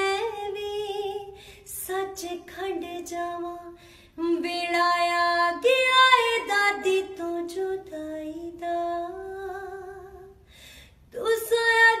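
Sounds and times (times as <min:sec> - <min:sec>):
woman singing unaccompanied: 0:00.0 - 0:10.4, 0:11.1 - 0:12.0.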